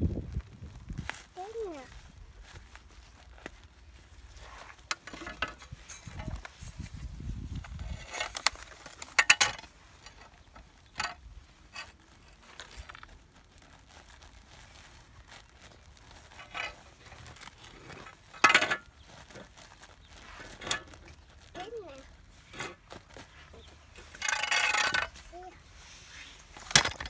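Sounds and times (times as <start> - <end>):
hard objects clinking: 7.6 - 12.0, 23.6 - 25.2.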